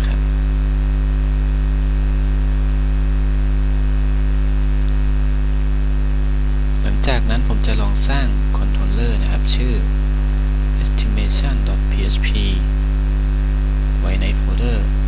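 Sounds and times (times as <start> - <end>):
man speaking: 0.0 - 0.2, 6.8 - 10.0, 10.7 - 12.7, 14.0 - 15.0
electrical mains hum: 0.0 - 15.0.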